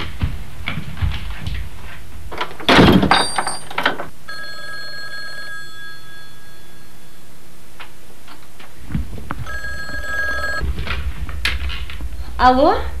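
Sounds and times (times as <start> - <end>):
telephone ringing: 4.2 - 7.4, 9.4 - 10.6.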